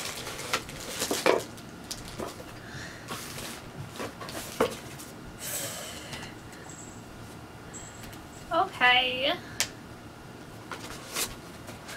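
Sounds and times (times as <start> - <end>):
plastic bag crinkling: 0.0 - 2.5.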